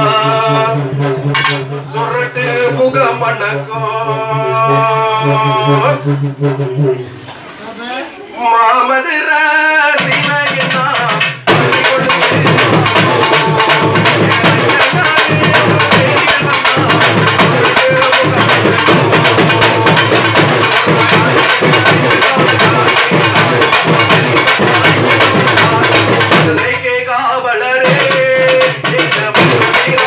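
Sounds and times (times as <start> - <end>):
person singing: 0.0 - 1.1, 1.7 - 6.6, 8.4 - 30.0
fast drum ensemble: 0.0 - 3.4, 9.6 - 30.0.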